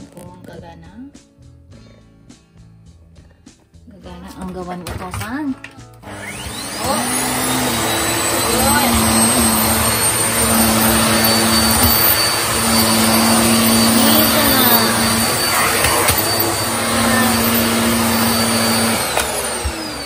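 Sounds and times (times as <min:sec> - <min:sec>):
motor winding down: 0:06.0 - 0:20.0
vacuum cleaner running: 0:06.0 - 0:20.0.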